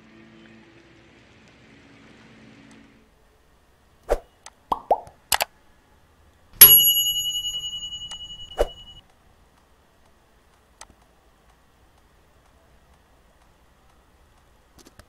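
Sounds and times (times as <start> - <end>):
metallic bell ringing: 6.6 - 9.0.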